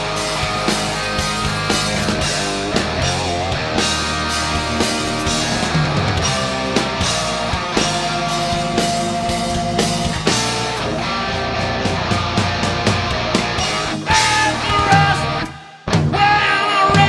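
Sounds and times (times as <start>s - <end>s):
bass guitar: 0.0s - 17.0s
distorted electric guitars: 0.0s - 17.0s
drum kit beat: 0.0s - 17.0s.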